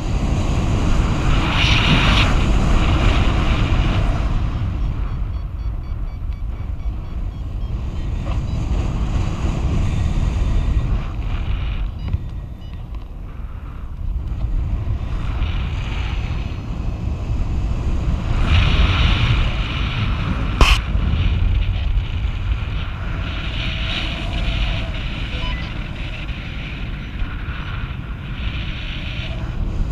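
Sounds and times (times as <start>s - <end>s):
wind buffeting microphone: 0.0s - 29.9s
sharp click: 20.6s - 20.8s.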